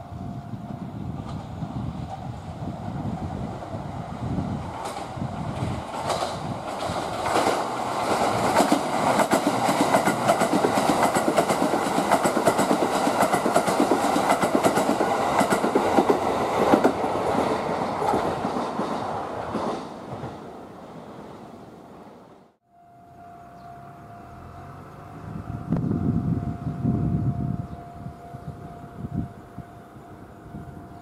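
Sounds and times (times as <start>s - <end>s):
train passing at speed: 0.0s - 22.6s, 23.2s - 31.0s
wheels clattering over rail joints: 4.7s - 20.4s.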